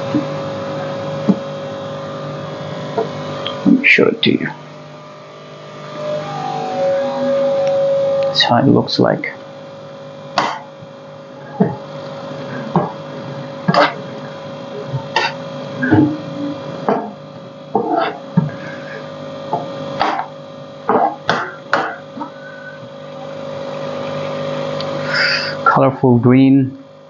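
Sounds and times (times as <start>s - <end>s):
steady hum: 0.0s - 27.0s
spatula scraping a wok: 13.7s - 14.0s, 15.2s - 15.4s, 17.8s - 19.1s.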